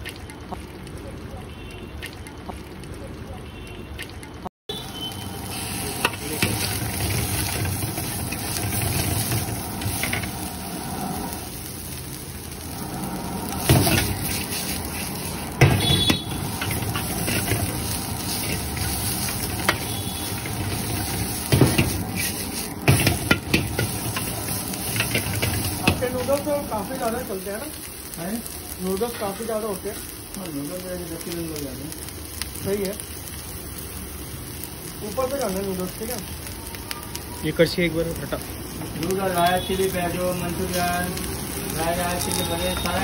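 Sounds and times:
vegetables sizzling in a wok: 4.4 - 43.0
gas burner rushing: 4.8 - 30.4
metal ladle scraping a wok: 5.5 - 10.3, 13.6 - 25.8
ladle clanking on a wok: 22.8 - 26.3.

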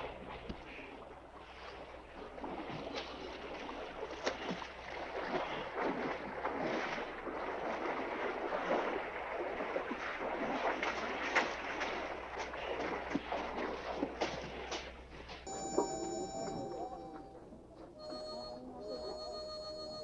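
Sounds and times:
water splashing from people swimming: 0.0 - 17.2.

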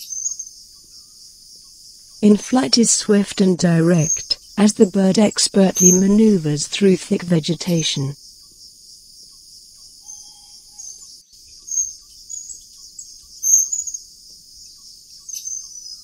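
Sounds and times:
insect chorus: 0.0 - 2.3, 8.2 - 16.0.

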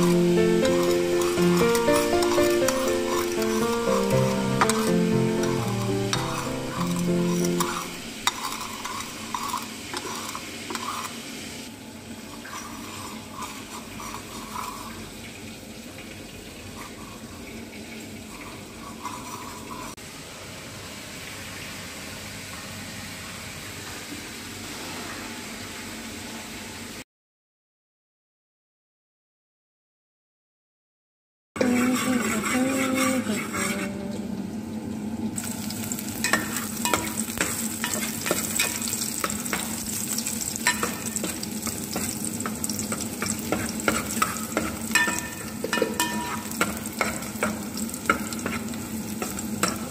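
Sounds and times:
background music: 0.0 - 8.1
spoon clinking against ceramic bowl: 40.6 - 41.4, 43.5 - 47.2.

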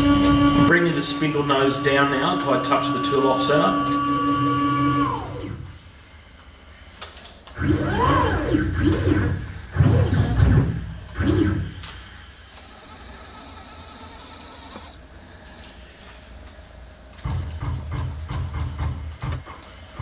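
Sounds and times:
stepper motor whining: 0.0 - 6.3, 7.5 - 15.0.

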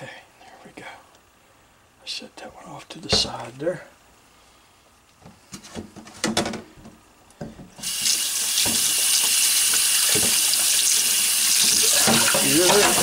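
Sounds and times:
tap water splashing into sink: 7.8 - 13.0.

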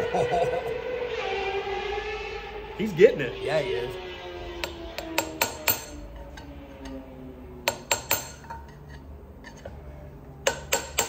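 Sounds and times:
hammer striking metal punch: 4.6 - 5.9, 7.6 - 8.6, 10.4 - 11.0.

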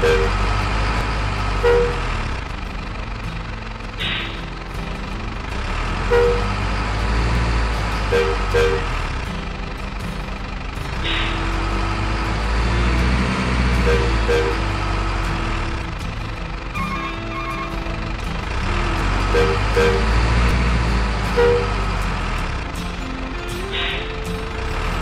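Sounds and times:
model truck engine running: 0.0 - 25.0
truck driving through muddy water: 0.0 - 25.0
short paired horn toots: 1.5 - 2.2, 6.0 - 6.7, 8.0 - 9.2, 11.0 - 15.2, 16.8 - 22.0.

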